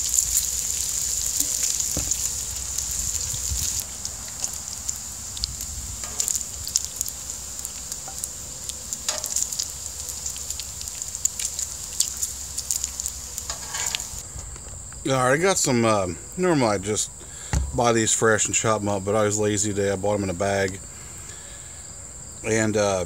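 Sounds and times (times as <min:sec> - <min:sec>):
bacon sizzling on griddle: 0:00.0 - 0:14.2
grease popping and crackling: 0:00.0 - 0:15.1.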